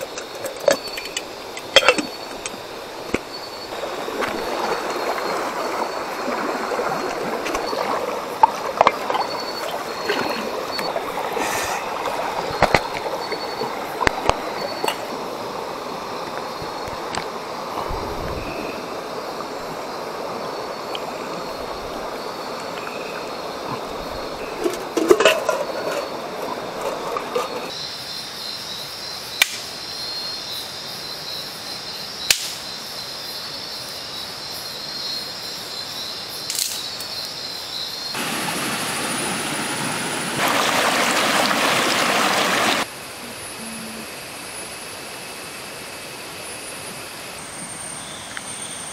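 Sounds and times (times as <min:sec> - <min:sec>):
water splashing: 0:00.0 - 0:27.7, 0:38.2 - 0:42.9
forest stream rushing: 0:00.0 - 0:27.8, 0:38.1 - 0:48.9
shallow river water running: 0:00.0 - 0:27.8, 0:32.6 - 0:48.9
night insects droning: 0:00.0 - 0:48.9
campfire pops: 0:32.3 - 0:32.6.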